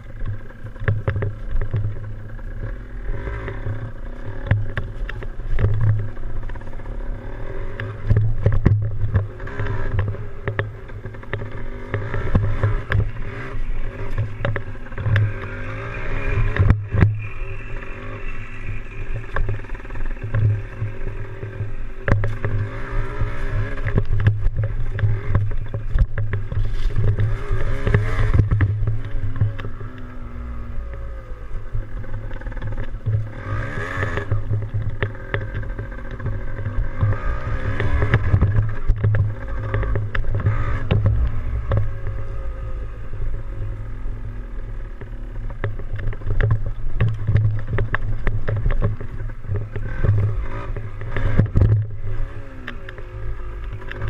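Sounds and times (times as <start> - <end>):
dirt bike engine revving: 0.1 - 45.5, 48.5 - 54.0
knocks and clicks: 32.3 - 42.4, 45.5 - 52.0.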